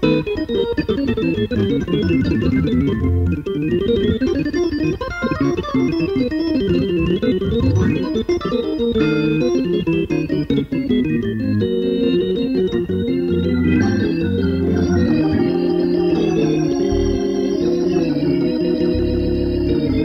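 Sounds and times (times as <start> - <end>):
organ through rotating speaker: 0.0 - 20.0
low bass line: 1.4 - 4.4, 6.7 - 8.1, 12.6 - 20.0.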